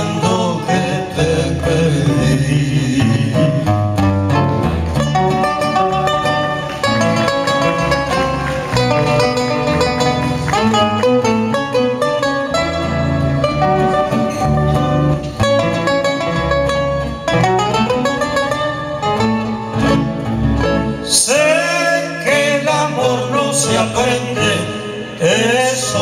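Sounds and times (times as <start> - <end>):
man singing: 0.0 - 4.0, 21.0 - 26.0
acoustic guitars playing: 0.0 - 26.0.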